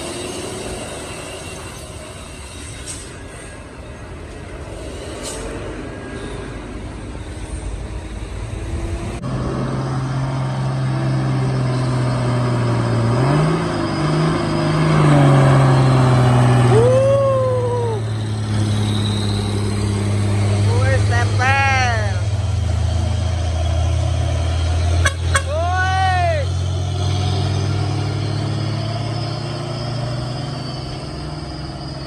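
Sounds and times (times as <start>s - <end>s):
diesel truck engines labouring: 0.0s - 32.0s
whistle-like tone: 11.4s - 20.1s, 27.3s - 32.0s.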